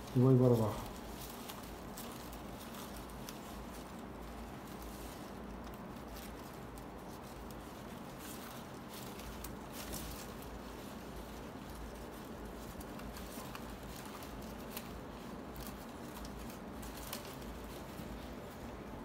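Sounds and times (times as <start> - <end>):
palm leaves rustling and scratching: 0.0 - 19.0.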